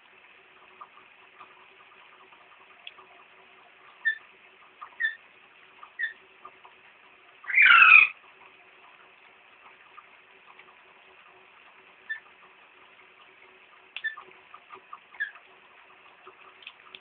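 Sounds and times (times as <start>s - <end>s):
parakeet chirping: 4.0s - 4.2s, 4.8s - 5.2s, 5.8s - 6.2s, 7.4s - 8.1s, 14.0s - 14.2s, 15.2s - 15.4s
parakeet squawk: 4.0s - 4.2s, 4.9s - 5.2s, 6.0s - 6.2s, 7.4s - 8.2s.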